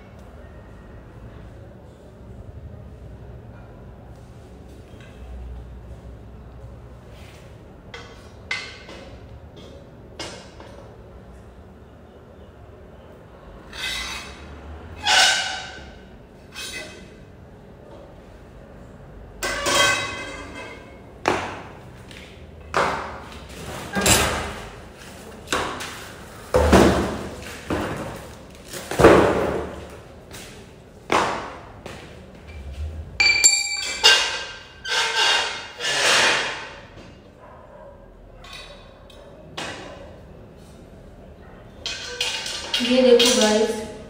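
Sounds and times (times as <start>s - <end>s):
metal tubes clanking: 19.4s - 20.9s, 33.2s - 35.7s
ringing metallic pings: 33.2s - 34.3s.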